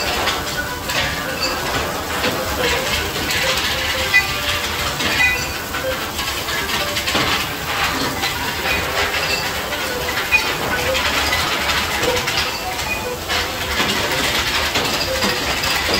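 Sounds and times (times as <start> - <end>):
metal clinks and knocks: 0.0 - 15.9
steady factory hiss: 0.0 - 15.9.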